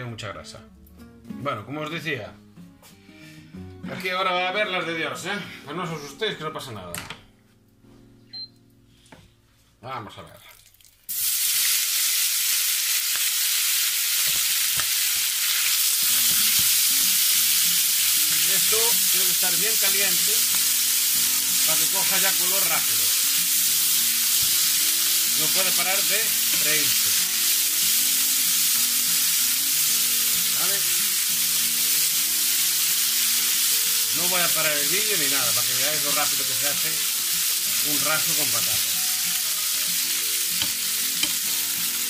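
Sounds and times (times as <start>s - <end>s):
meat sizzling in hot oil: 10.7s - 42.0s.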